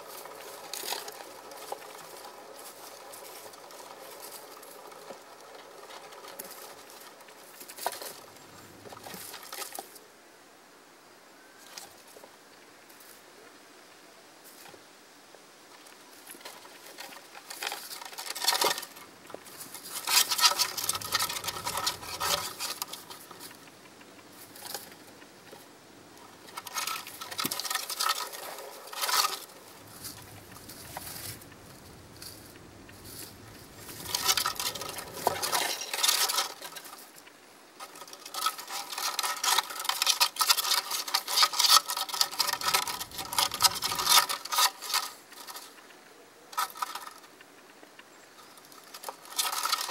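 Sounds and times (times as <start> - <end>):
wooden running wheel clattering: 0.0 - 9.8, 16.3 - 45.8.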